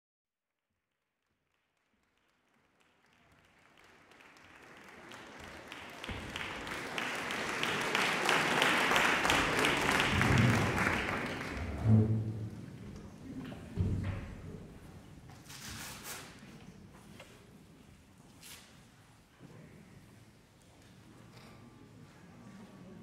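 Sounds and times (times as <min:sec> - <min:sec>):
audience applauding: 0:01.4 - 0:12.3.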